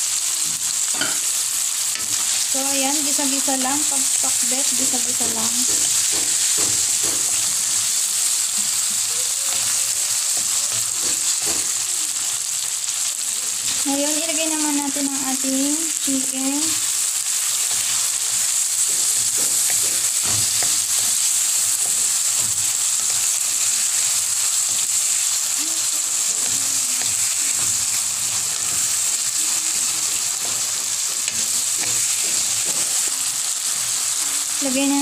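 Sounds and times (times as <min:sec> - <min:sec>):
chicken sizzling in hot oil: 0:00.0 - 0:35.0.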